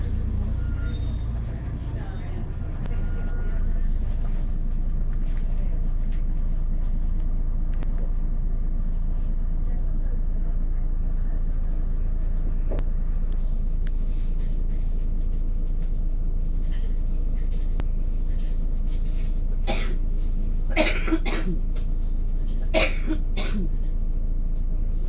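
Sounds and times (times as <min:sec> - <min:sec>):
bus engine idling: 0:00.0 - 0:25.0
person coughing: 0:19.7 - 0:20.0, 0:20.7 - 0:21.6, 0:22.8 - 0:23.8.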